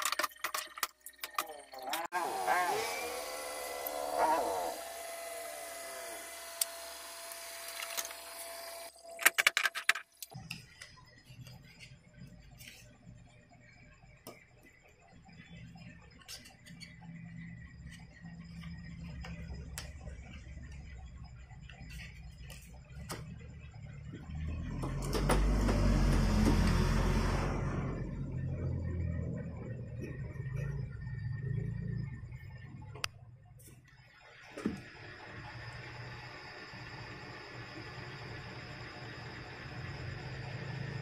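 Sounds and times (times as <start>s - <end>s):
low hum: 10.4s - 41.0s.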